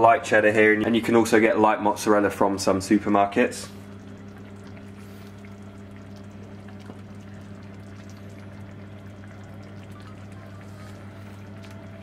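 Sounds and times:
steady low hum: 0.0s - 12.0s
sauce bubbling and popping: 3.7s - 12.0s.

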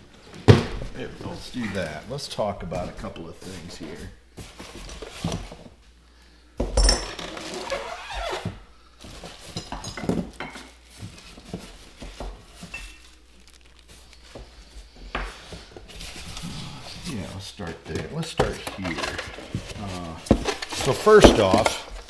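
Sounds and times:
cardboard packaging rustling: 10.2s - 22.0s.

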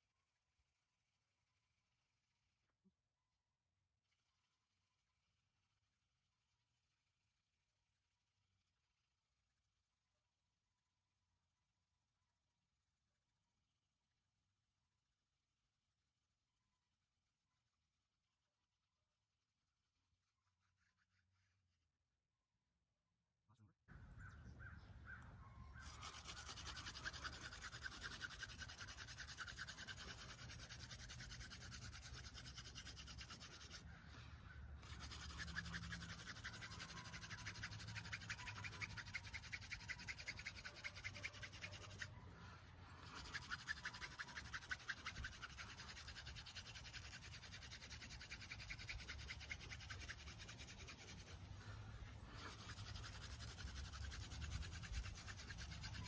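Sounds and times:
hand drill spindle scratching wood: 25.8s - 33.9s, 34.8s - 42.2s, 43.0s - 51.5s, 52.3s - 56.0s.

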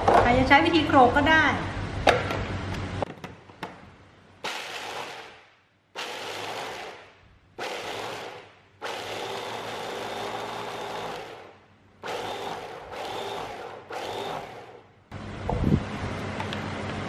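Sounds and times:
electric chopper grinding nuts: 4.4s - 5.4s, 6.0s - 14.9s.

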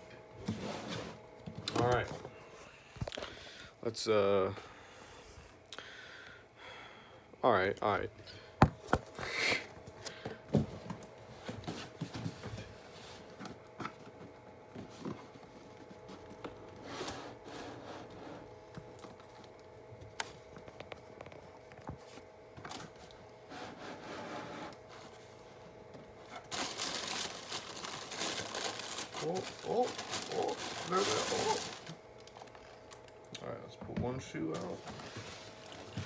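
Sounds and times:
tissue paper rustling: 26.3s - 32.5s.

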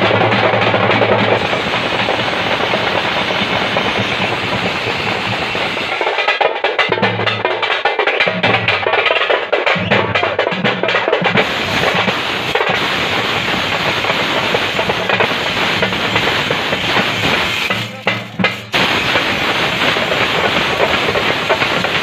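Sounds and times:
drums beaten with sticks: 0.0s - 22.0s.

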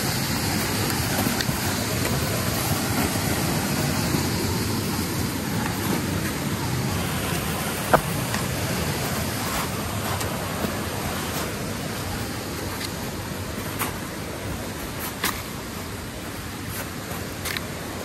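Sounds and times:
stream rushing over rocks: 0.0s - 18.0s.

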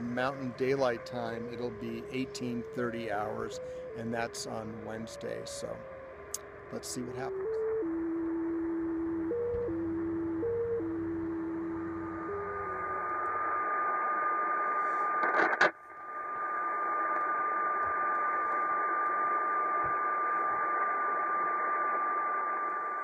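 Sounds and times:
digital-mode signal stepping tones: 0.0s - 5.9s, 6.7s - 23.0s
continuous radio tone: 0.0s - 23.0s
radio receiver hiss: 8.5s - 23.0s
static crash: 12.3s - 23.0s.

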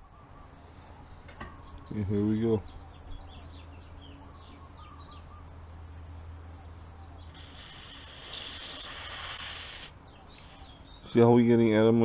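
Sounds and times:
aerosol spray hissing: 7.4s - 10.7s.

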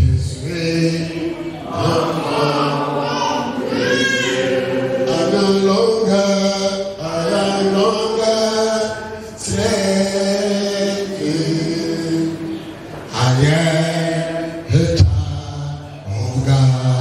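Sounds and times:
man singing into microphone: 0.0s - 4.4s, 5.0s - 17.0s
congregation singing: 0.0s - 17.0s.

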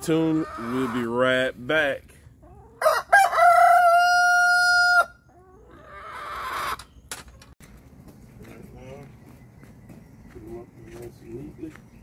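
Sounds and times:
rooster crowing: 2.8s - 5.2s.

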